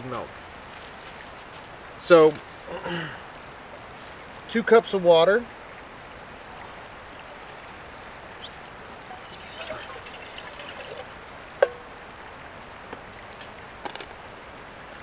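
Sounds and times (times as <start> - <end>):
steady background hiss: 0.0 - 15.0
water pouring into a pot: 9.1 - 11.2.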